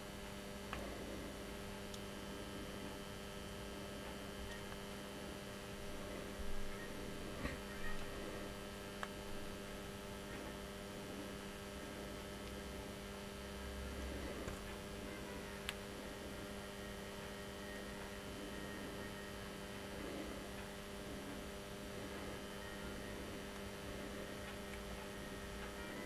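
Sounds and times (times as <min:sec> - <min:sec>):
electrical mains hum: 0:00.0 - 0:26.0.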